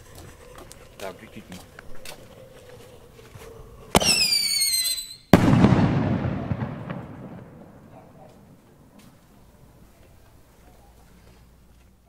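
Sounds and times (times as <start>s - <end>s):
firework screaming whistle: 3.9s - 7.0s
firework bang: 3.9s - 8.6s
rumble after explosion: 5.3s - 8.0s.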